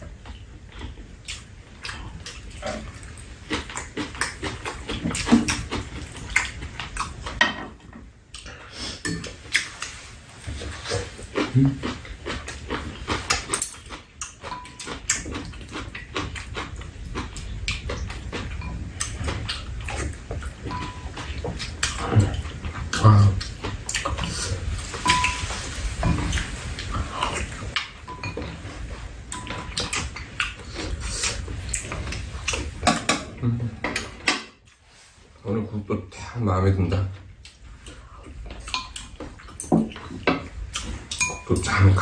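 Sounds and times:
chewing and slurping: 0:00.0 - 0:07.4, 0:08.3 - 0:35.3, 0:37.3 - 0:42.0
utensils clinking against ceramic bowls: 0:13.5 - 0:15.2, 0:20.6 - 0:21.4, 0:25.0 - 0:26.5, 0:27.2 - 0:30.3, 0:38.6 - 0:42.0
utensils clicking against bowls: 0:38.6 - 0:42.0.

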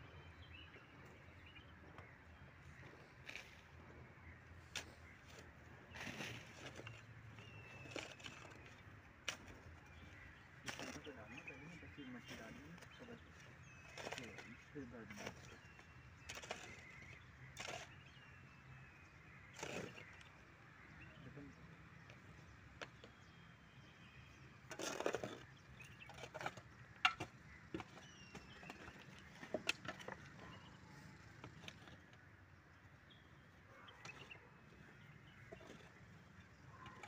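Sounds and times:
shovel scraping stony soil: 0:02.8 - 0:03.8, 0:04.6 - 0:18.2, 0:19.4 - 0:20.2, 0:24.6 - 0:30.3.

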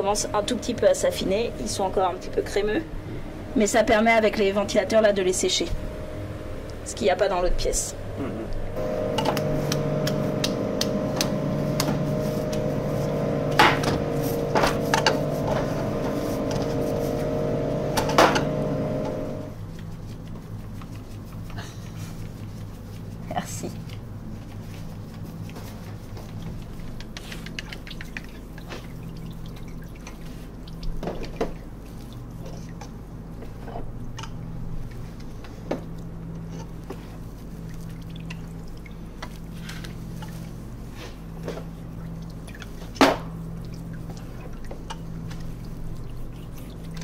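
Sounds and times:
low machine hum: 0:00.0 - 0:47.0
wet scooping and pouring curd: 0:27.8 - 0:35.4, 0:36.0 - 0:47.0.

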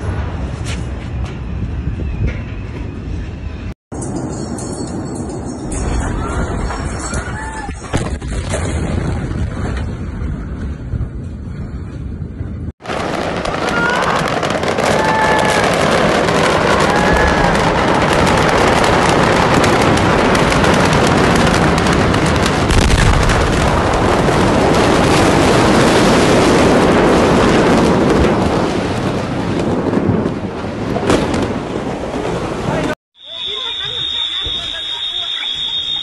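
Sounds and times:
large fire crackling and popping: 0:05.7 - 0:36.0
deep explosion blast: 0:07.7 - 0:11.2, 0:12.6 - 0:33.0.

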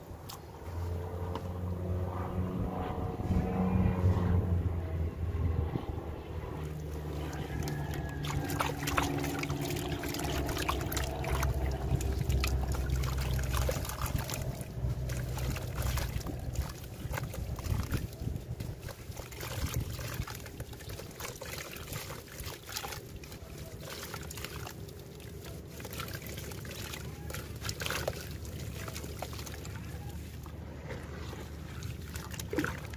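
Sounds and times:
low steady hum: 0:00.0 - 0:32.9
wet grit crackling and trickling: 0:06.6 - 0:32.9.

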